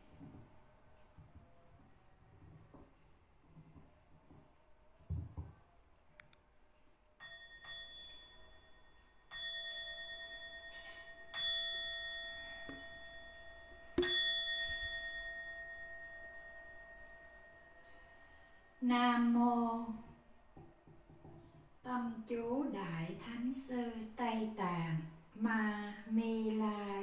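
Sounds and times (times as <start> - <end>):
bowl bell ringing: 7.2 - 19.4.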